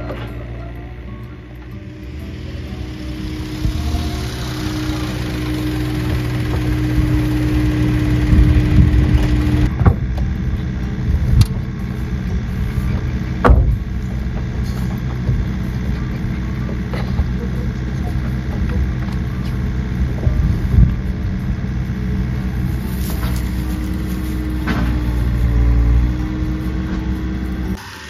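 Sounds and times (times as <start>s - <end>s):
low engine hum: 0.0s - 27.8s
excavator engine whining under load: 0.0s - 28.0s
sharp knocks: 13.4s - 13.8s.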